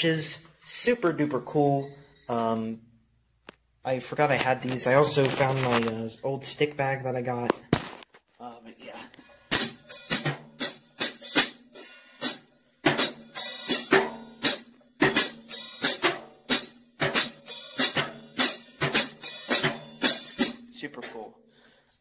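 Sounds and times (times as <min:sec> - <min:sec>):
drum kit played with sticks: 0:09.2 - 0:21.3.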